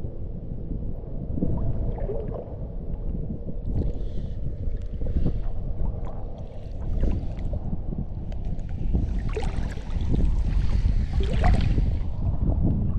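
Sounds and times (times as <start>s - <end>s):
wind rumbling on microphone: 0.0s - 12.9s
small waves slapping a hull: 3.6s - 12.3s.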